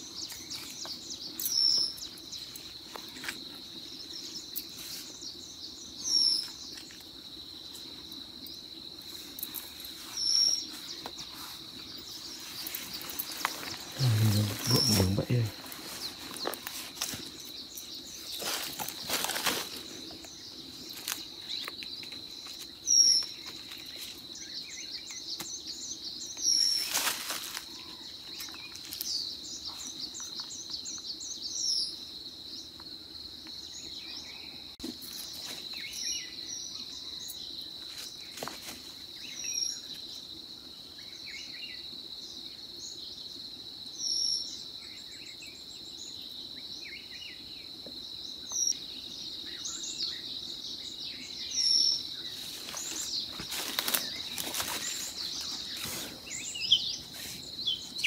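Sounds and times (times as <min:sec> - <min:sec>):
small bird chirping: 0:00.0 - 0:27.0, 0:48.4 - 0:58.0
high-pitched insect drone: 0:01.4 - 0:25.1
footsteps on dry leaves: 0:09.1 - 0:17.5, 0:18.2 - 0:20.2, 0:26.7 - 0:27.9, 0:52.3 - 0:57.6.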